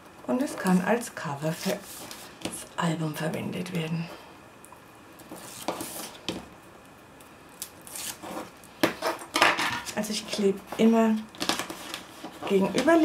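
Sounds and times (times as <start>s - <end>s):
paper rustling: 1.5s - 2.4s, 9.9s - 13.0s
tape backing peeling: 5.2s - 6.3s, 7.6s - 9.3s.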